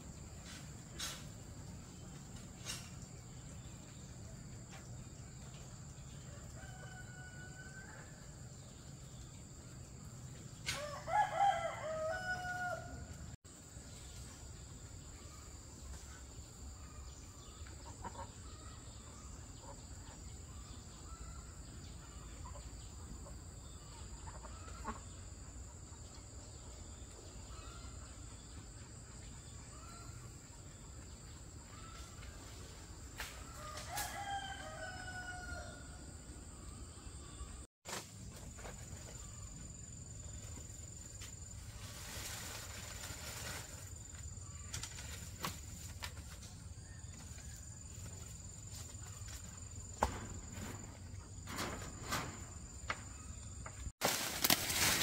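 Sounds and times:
rooster crowing: 6.3 - 8.2, 10.7 - 13.2, 33.6 - 36.2.

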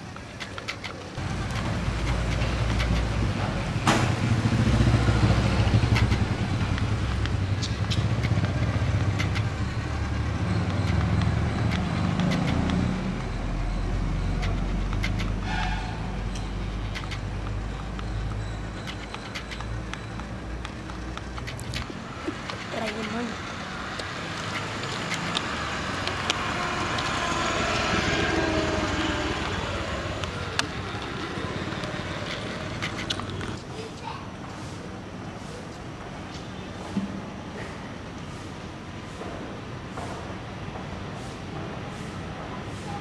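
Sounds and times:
toy road roller motor rumble: 16.2 - 33.6.

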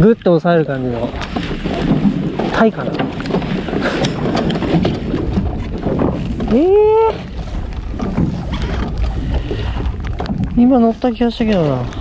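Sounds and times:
boat engine rumble: 0.0 - 12.0
wind buffeting microphone: 0.0 - 12.0.

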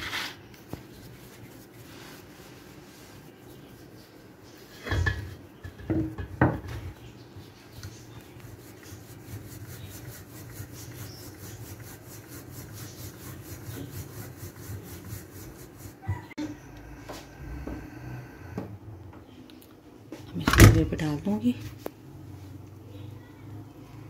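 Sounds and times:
rolling pin rubbing on dough: 0.0 - 5.0, 7.7 - 18.5.

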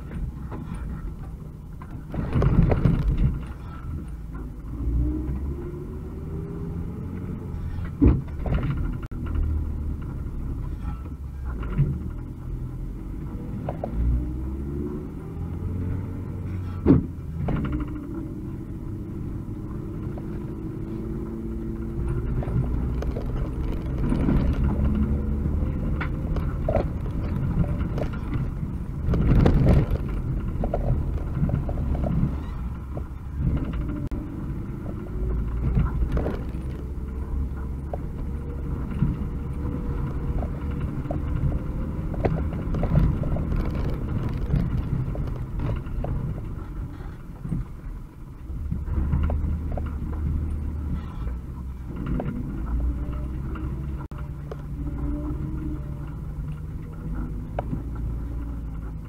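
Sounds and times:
body knocks and rattles: 0.0 - 3.8, 7.9 - 10.3, 19.8 - 47.8
van engine from inside cab: 0.0 - 59.0
vehicle jolt: 0.0 - 59.0.

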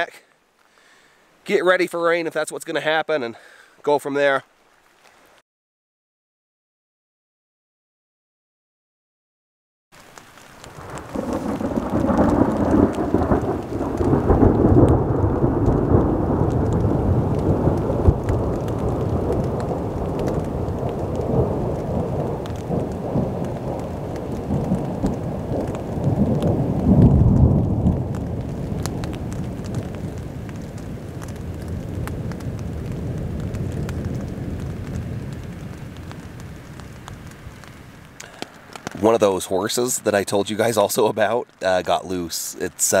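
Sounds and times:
rain falling: 0.0 - 5.4, 10.0 - 43.0
rolling thunder: 10.6 - 37.7.

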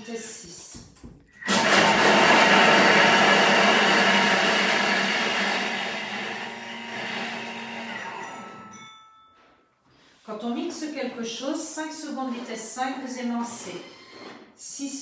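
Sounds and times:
food processor blade whirring: 1.4 - 8.4.

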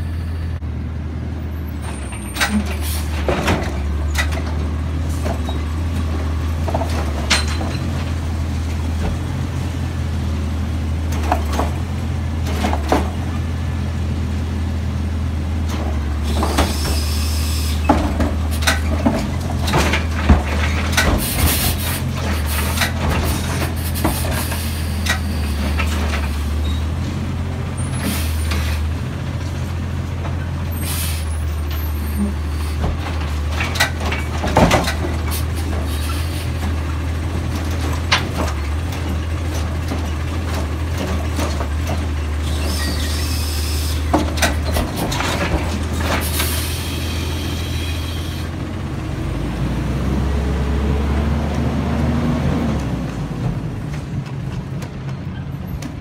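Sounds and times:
garbage truck engine running: 1.4 - 56.0
air-brake hisses: 46.3 - 48.5.

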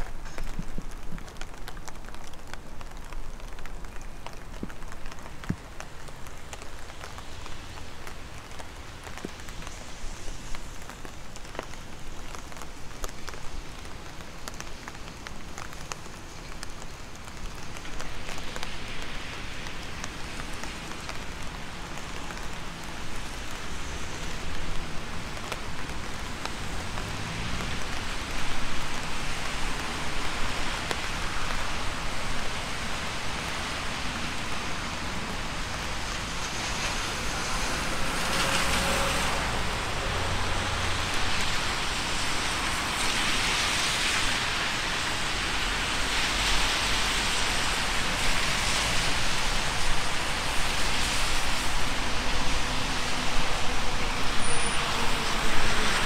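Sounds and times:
raindrops ticking: 0.0 - 9.8, 10.4 - 33.6
rain falling: 0.0 - 56.0.

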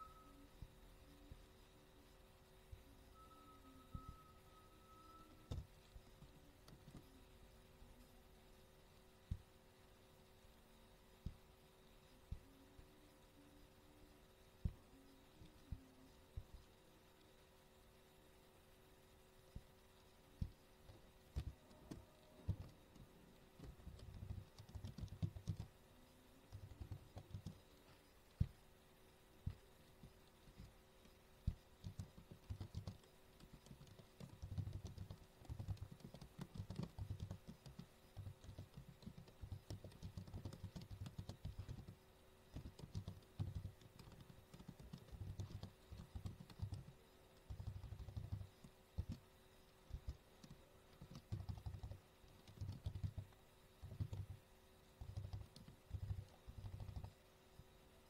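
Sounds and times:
computer keyboard typing: 5.4 - 7.1, 20.4 - 25.8, 26.4 - 27.8, 29.5 - 49.2, 49.8 - 57.2.

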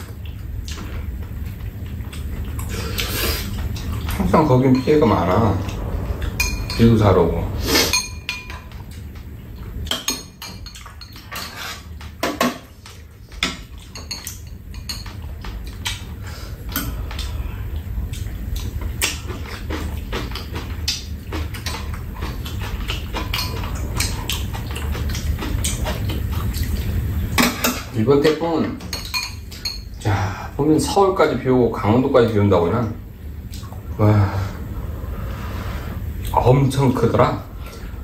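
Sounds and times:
low background rumble: 0.0 - 11.3, 11.9 - 28.4
metal utensils clinking on bowls: 3.8 - 7.0, 7.9 - 9.2, 9.9 - 16.1, 27.4 - 30.0.

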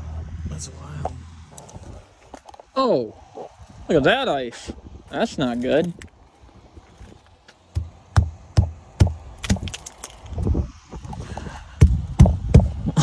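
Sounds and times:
crusted ice cracking: 5.5 - 6.2, 9.4 - 10.5
sharp knocks on ice: 7.8 - 10.3.

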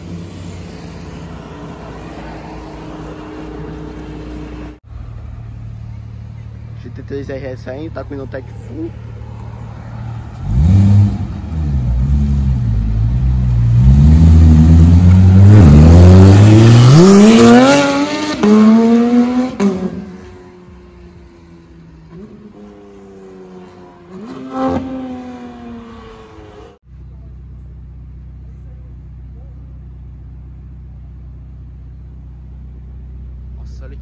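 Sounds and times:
sports car engine accelerating: 8.9 - 34.0.

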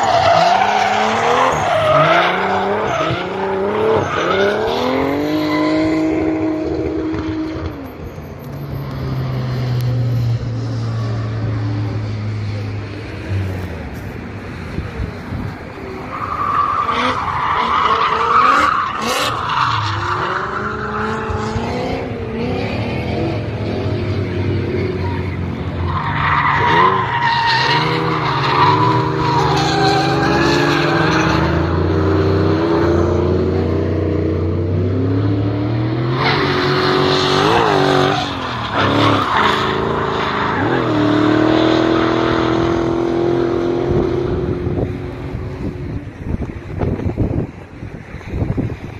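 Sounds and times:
car engines revving: 0.0 - 48.9
tyres screeching: 24.7 - 32.1.

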